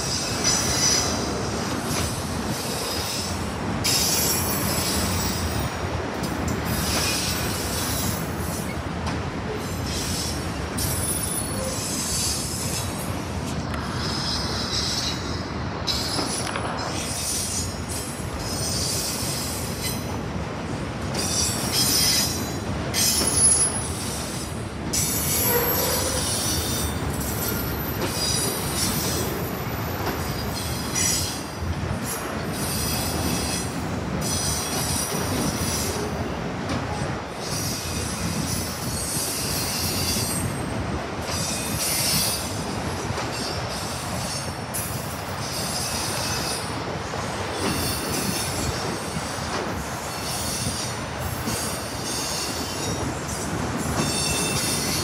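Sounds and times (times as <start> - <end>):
freight train wheels on rail: 0.0 - 55.0.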